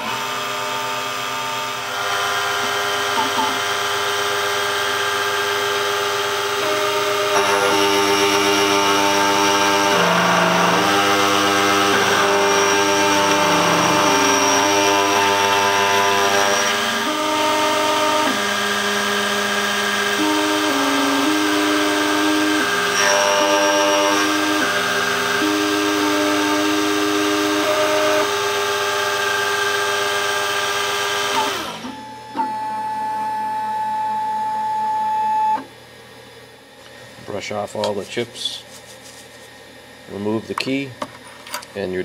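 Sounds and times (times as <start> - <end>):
key cutting machine milling: 0.0 - 32.6
machine drive whining: 2.0 - 35.8.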